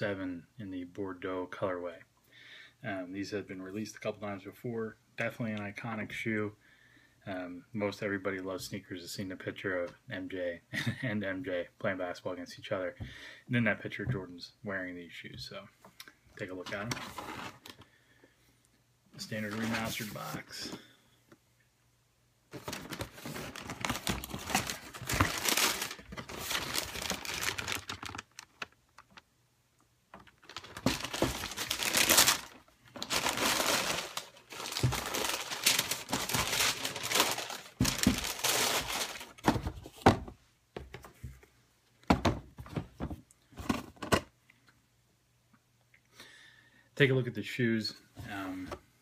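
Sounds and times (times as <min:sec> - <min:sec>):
tissue paper crinkling: 0:22.5 - 0:29.2, 0:30.2 - 0:39.5.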